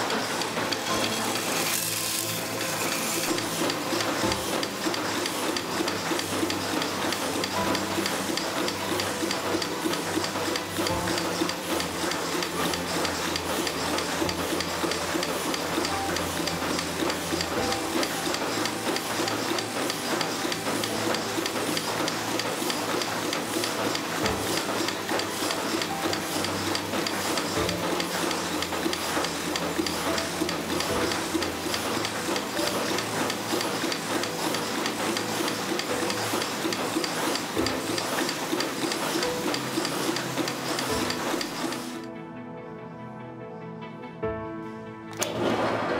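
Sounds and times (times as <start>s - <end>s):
thread rolling machine running: 0.0s - 42.1s.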